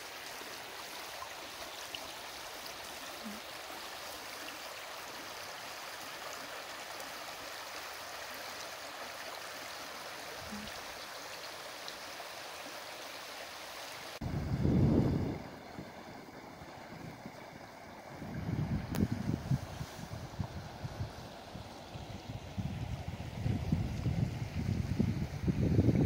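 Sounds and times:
stream running over gravel: 0.0 - 26.0.

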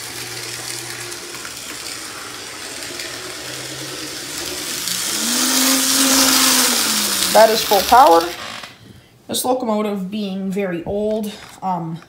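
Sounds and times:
model train motor whirring: 0.0 - 8.8.

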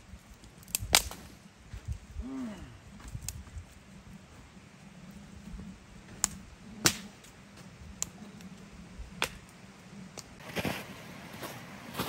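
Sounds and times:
sharp snaps: 6.2 - 7.1.

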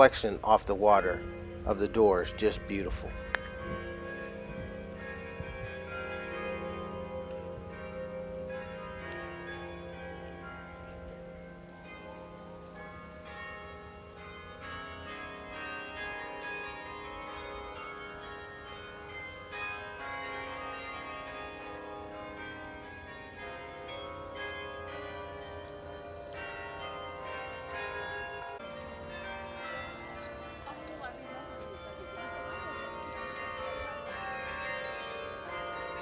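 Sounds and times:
carillon bells playing a tune: 12.7 - 36.0.

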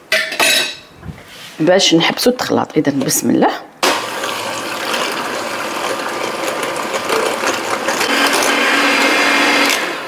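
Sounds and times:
electric hand mixer running: 3.9 - 10.0.

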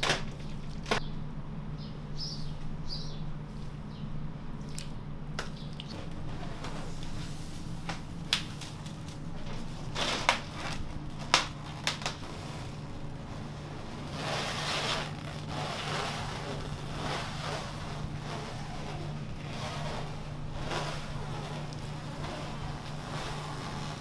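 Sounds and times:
low hum: 0.3 - 24.0
plastic film crinkling: 5.9 - 24.0.

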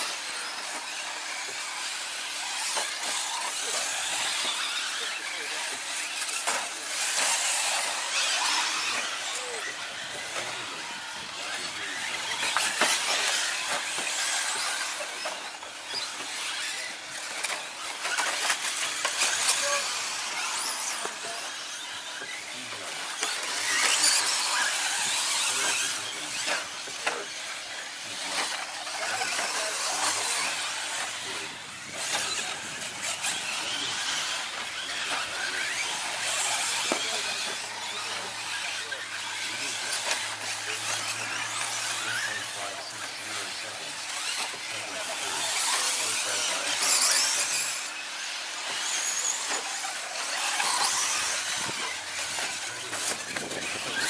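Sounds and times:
electric motors whining: 0.0 - 54.0.

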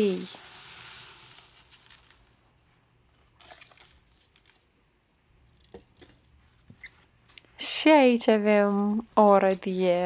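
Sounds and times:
dry rice pouring: 0.0 - 2.4
plastic packet crinkling: 0.9 - 2.4, 3.4 - 4.8.

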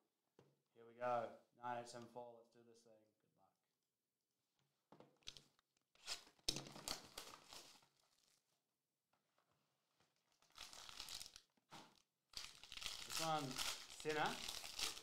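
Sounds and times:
plastic wrapping crinkling and tearing: 6.0 - 8.4, 10.0 - 15.0.

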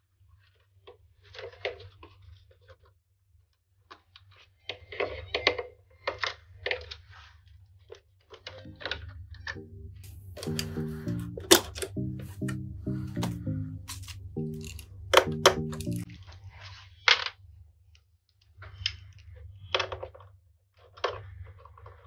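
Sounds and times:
faint music: 8.7 - 16.2
low steady hum: 8.7 - 16.2.

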